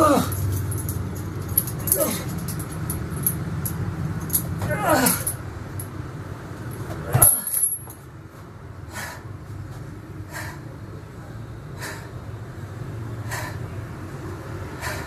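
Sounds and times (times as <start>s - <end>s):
low steady hum: 0.0s - 15.0s
metal chains clattering onto floor: 0.2s - 5.4s, 7.1s - 8.0s.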